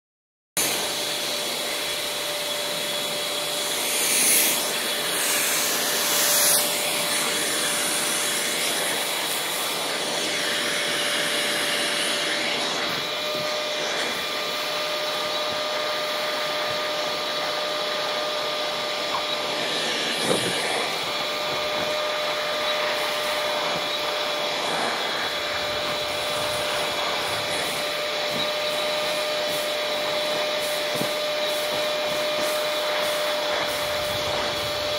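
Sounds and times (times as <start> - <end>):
shop vacuum running: 0.6 - 34.9.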